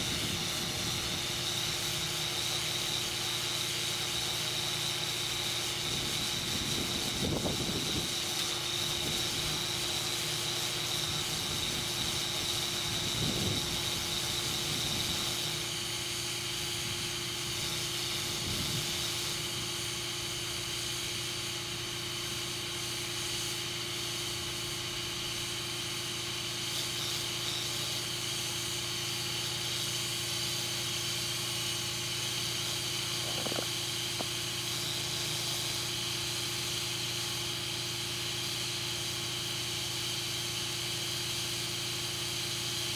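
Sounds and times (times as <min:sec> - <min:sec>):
air compressor humming: 0:00.0 - 0:25.9, 0:27.3 - 0:36.8
air hissing into inner tube: 0:29.0 - 0:36.0.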